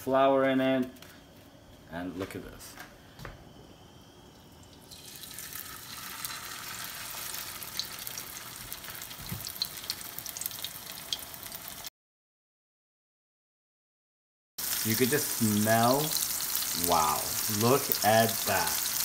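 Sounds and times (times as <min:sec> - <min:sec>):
meat patty sizzling in oil: 0:04.7 - 0:11.9, 0:14.6 - 0:19.0
oil crackling and popping: 0:04.9 - 0:11.9, 0:14.6 - 0:19.0.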